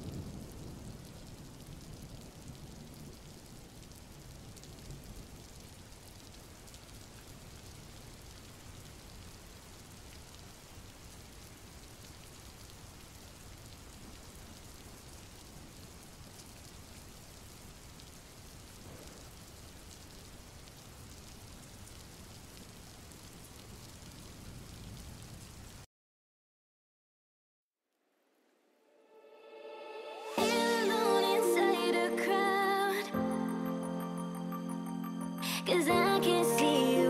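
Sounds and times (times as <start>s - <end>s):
steady rain: 0.0s - 25.9s, 29.8s - 37.0s.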